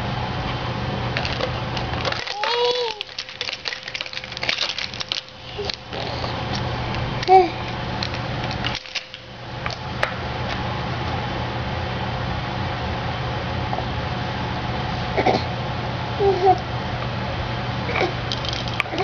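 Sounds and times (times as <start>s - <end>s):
steady low hum: 0.0s - 19.0s
baby squealing: 2.3s - 3.0s.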